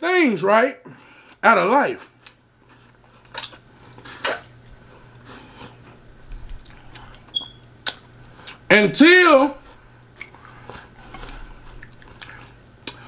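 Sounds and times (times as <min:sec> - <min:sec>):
wet chewing and lip smacks: 0:02.2 - 0:08.7, 0:09.6 - 0:13.0.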